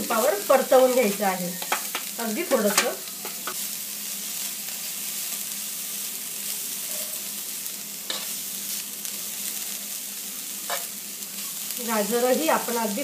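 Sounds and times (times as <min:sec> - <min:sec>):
carrot sizzling in pan: 0:00.0 - 0:13.0
steel spoon scraping pan: 0:01.0 - 0:02.0.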